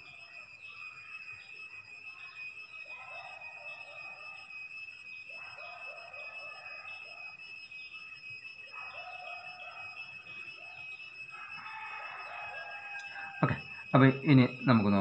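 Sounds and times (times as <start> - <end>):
birds chattering: 0.0 - 4.4, 8.6 - 15.0
steady high-pitched whine: 0.0 - 15.0.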